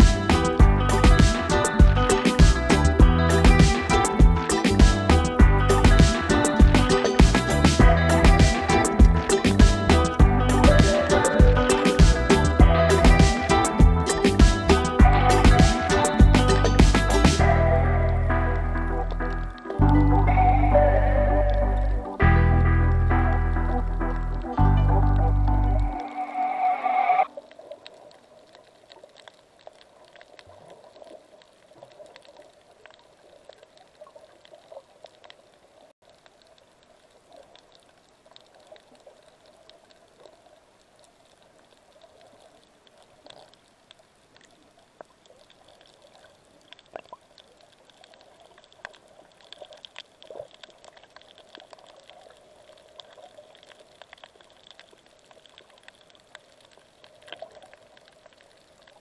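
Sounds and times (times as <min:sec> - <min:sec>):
muffled underwater noise: 0:00.0 - 0:22.3, 0:23.0 - 0:32.7
small clicks and crackles: 0:27.3 - 0:59.0.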